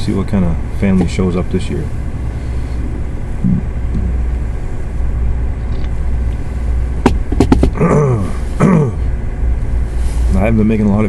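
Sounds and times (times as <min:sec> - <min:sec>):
truck engine idling: 0:00.0 - 0:11.0
man's short falling vocal sound: 0:07.7 - 0:09.0.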